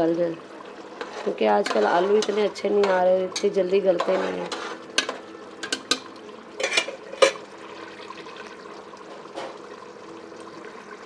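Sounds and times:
spoon scraping metal pot: 1.0 - 6.0, 6.6 - 7.4.

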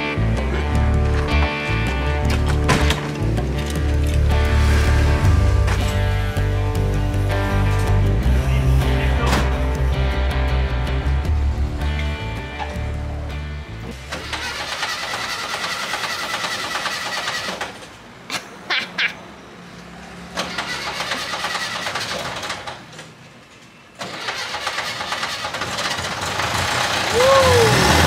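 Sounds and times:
starter cranking engine: 13.9 - 18.0, 20.4 - 22.9, 24.0 - 28.0.

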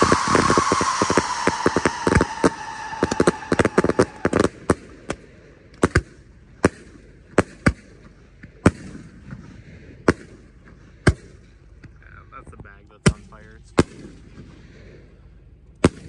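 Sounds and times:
firework cake bangs: 0.0 - 4.9
firework shell bursts: 0.0 - 5.2.

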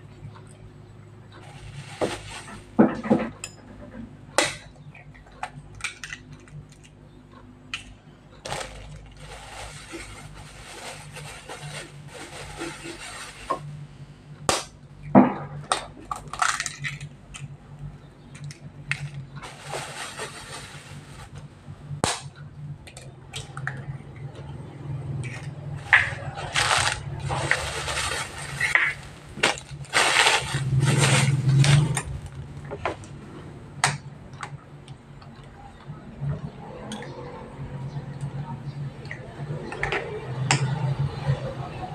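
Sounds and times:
plastic packaging crinkling: 1.4 - 2.8, 8.5 - 13.7, 19.0 - 21.5, 25.8 - 33.1.

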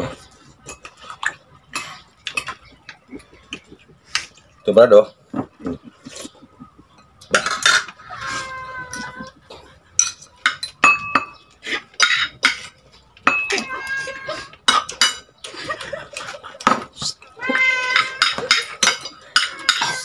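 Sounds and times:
cutlery clinking on plate: 0.6 - 2.7, 7.0 - 8.0, 10.0 - 14.0, 14.6 - 15.3, 17.5 - 20.0.

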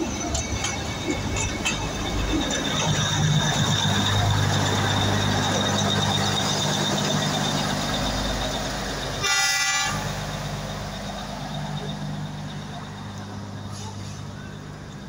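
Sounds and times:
diesel locomotive engine drone: 0.0 - 15.0
locomotive horn toot: 9.2 - 10.2.

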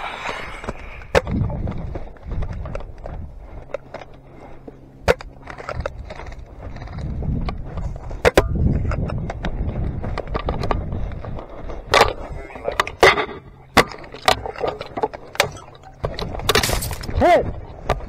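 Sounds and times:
branches rustling against gear: 0.8 - 12.3.

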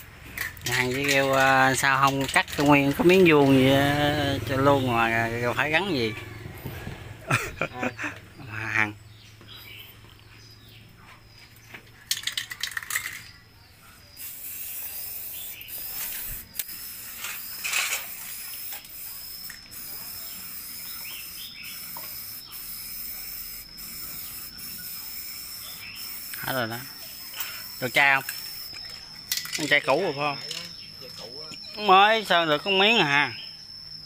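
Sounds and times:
spray can ball rattling: 0.3 - 3.7, 12.0 - 13.4, 14.2 - 31.2
spray can hissing: 14.1 - 29.6.

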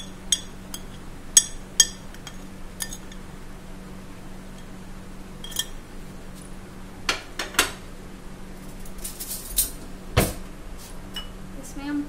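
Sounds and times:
glass and metal spoon clinking: 0.0 - 3.3, 5.4 - 5.8.

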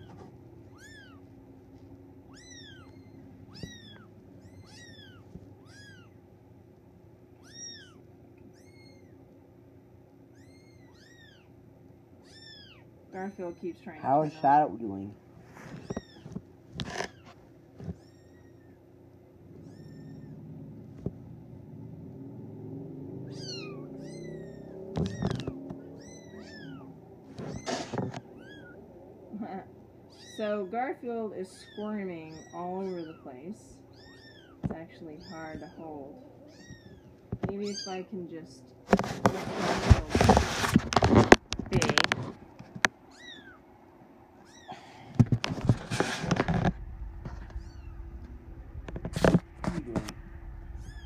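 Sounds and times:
kittens mewing: 0.7 - 1.2, 2.3 - 6.2, 7.4 - 9.2, 10.2 - 11.6, 12.2 - 14.5, 17.0 - 18.9, 19.5 - 20.8, 23.2 - 30.8, 31.5 - 38.1, 43.0 - 43.6, 44.4 - 45.3
bumps and rustles of handling: 15.2 - 18.2, 24.9 - 25.9, 27.3 - 28.6, 36.6 - 43.0, 44.8 - 50.2
kitten mewing: 23.2 - 30.5.

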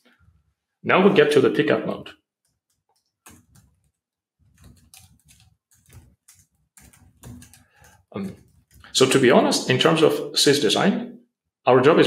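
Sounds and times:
keyboard typing: 2.4 - 9.2.

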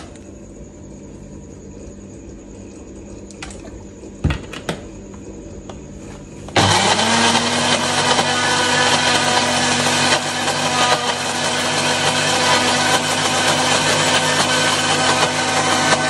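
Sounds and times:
blender motor grinding: 6.6 - 16.0.

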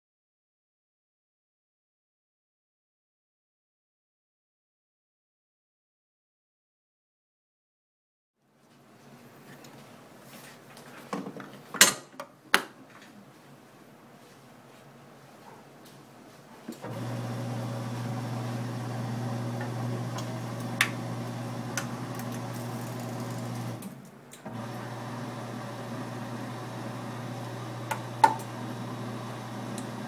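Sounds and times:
electric motor humming: 16.8 - 23.9, 24.5 - 30.0.

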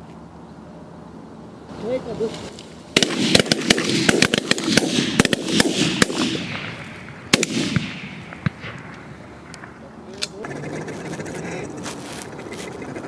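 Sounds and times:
shotgun shots: 3.0 - 9.8.

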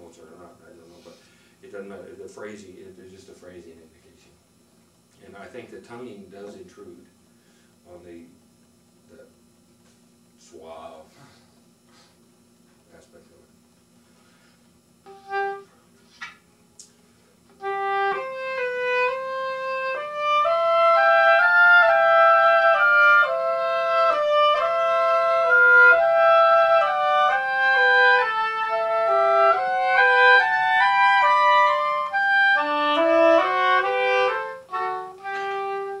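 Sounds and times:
two oboes playing melody: 15.0 - 15.7, 17.6 - 36.0.

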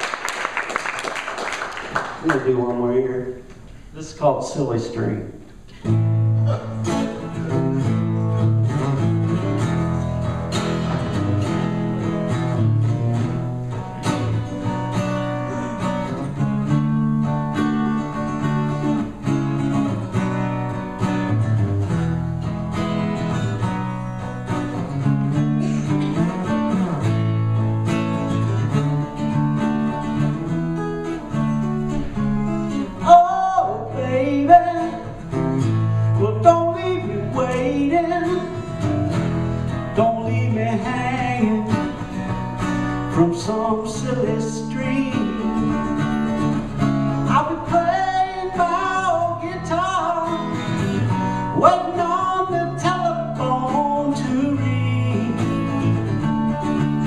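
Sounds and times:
acoustic guitar: 0.0 - 57.0
man singing: 32.9 - 35.4, 36.0 - 38.8, 39.9 - 42.1, 43.0 - 46.0, 47.2 - 50.8, 51.5 - 56.1.

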